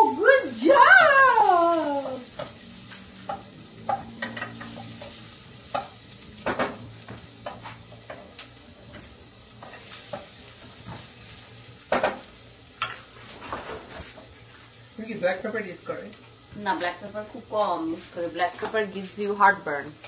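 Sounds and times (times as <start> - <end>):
food sizzling in frying pan: 0.0 - 20.0
utensil knocking on pan: 5.7 - 8.3.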